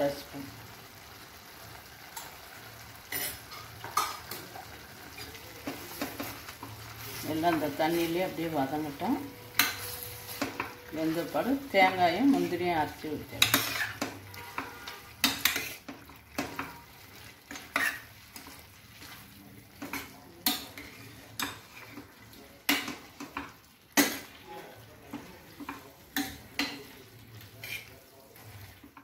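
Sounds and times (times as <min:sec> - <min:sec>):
spoon scraping metal pan: 0:05.2 - 0:16.9, 0:17.5 - 0:19.2, 0:27.5 - 0:28.0.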